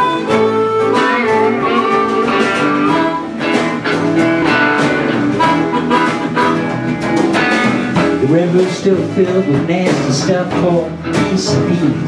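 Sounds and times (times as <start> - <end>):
harmonica melody: 0.0 - 10.4
strummed electric guitar: 0.0 - 12.0.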